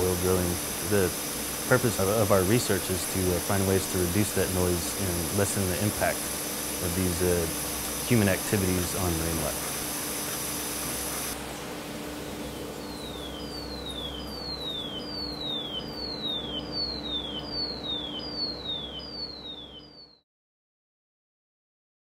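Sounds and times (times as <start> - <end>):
air bubbles hissing: 0.0 - 14.1
steady low hum: 0.0 - 19.5
underwater falling chirps: 12.3 - 19.5.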